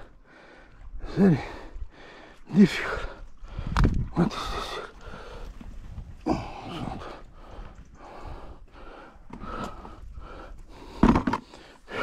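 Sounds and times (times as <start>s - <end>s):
man panting: 0.1s - 5.6s, 6.2s - 12.0s.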